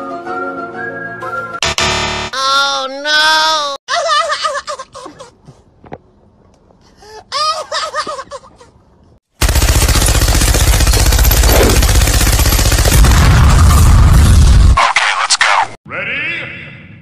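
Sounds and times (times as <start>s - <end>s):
machine-gun fire: 9.4s - 14.7s.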